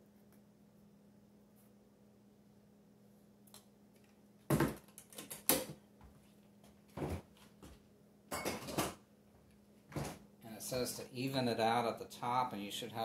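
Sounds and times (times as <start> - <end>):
glass and metal kitchenware clinking: 8.3 - 9.0.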